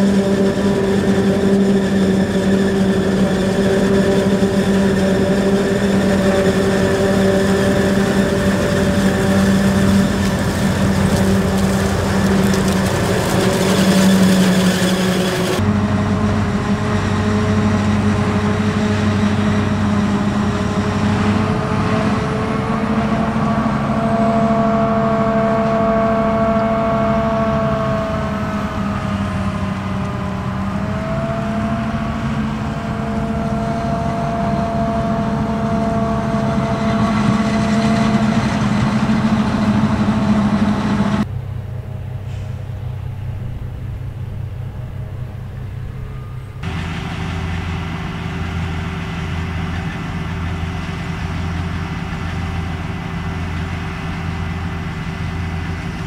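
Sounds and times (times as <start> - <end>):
chopped maize blowing into trailer: 0.0 - 15.8
harvester and tractor engines: 0.0 - 56.0.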